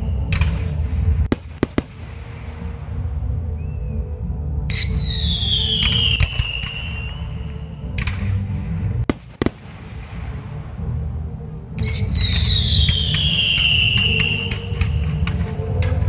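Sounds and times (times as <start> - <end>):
firework crackles: 0.0 - 3.1, 4.8 - 11.0, 11.8 - 16.0
firework bangs: 0.3 - 3.0, 4.8 - 7.3, 7.9 - 10.6, 11.8 - 16.0
falling firework whistle: 4.7 - 8.3, 11.8 - 15.6.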